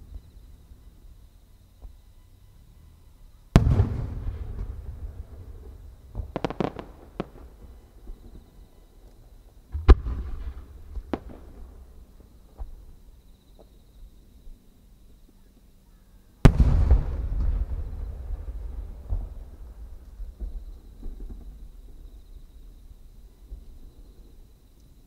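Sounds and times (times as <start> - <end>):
sharp firework cracks: 3.5 - 7.6, 16.4 - 19.8
firework bangs with rolling echo: 3.5 - 8.3, 9.7 - 12.0, 16.4 - 22.2.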